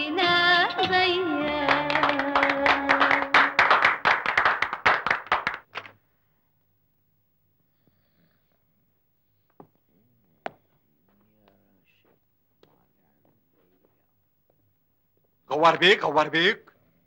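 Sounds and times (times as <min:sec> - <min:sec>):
hands clapping in rhythm: 0:00.6 - 0:06.0.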